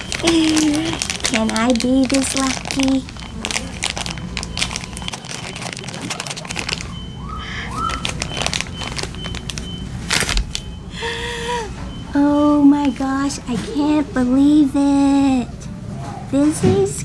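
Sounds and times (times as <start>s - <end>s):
plastic bag crinkling: 0.0s - 10.7s.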